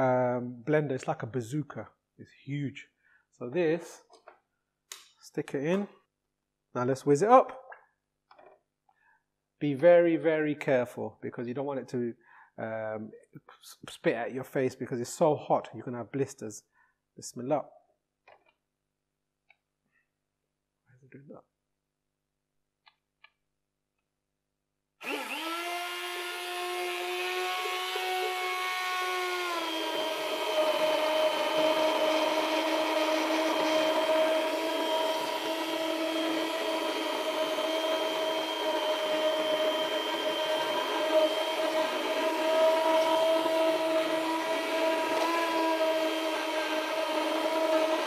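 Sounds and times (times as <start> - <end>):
stick blender motor whirring: 25.0 - 48.0.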